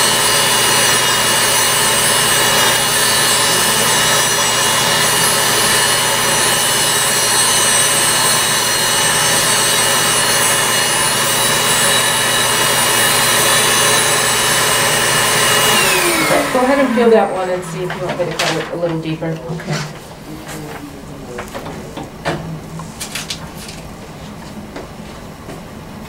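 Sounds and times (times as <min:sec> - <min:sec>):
drill grinding toenail: 0:00.0 - 0:18.6
nail drill whining: 0:00.0 - 0:19.0.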